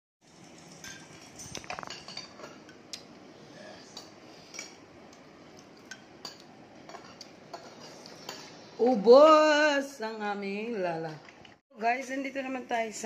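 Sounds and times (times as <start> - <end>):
cutlery clinking on a plate: 0.5 - 2.8, 5.8 - 8.5.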